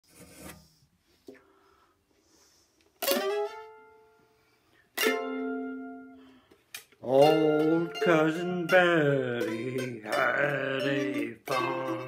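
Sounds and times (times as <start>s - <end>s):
mandolin chords strummed: 3.0s - 4.0s, 5.0s - 6.3s, 7.0s - 12.0s
mandolin pluck: 3.0s - 4.0s, 4.9s - 6.3s, 7.0s - 12.0s.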